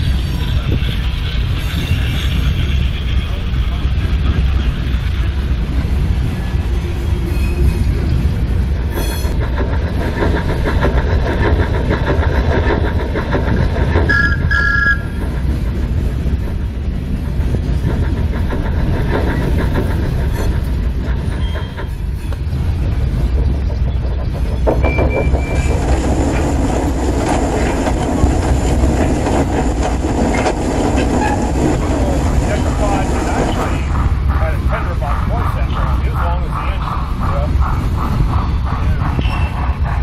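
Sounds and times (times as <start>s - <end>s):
steady low rumble: 22.4s - 40.0s
model train wheels clicking on rails: 32.6s - 40.0s.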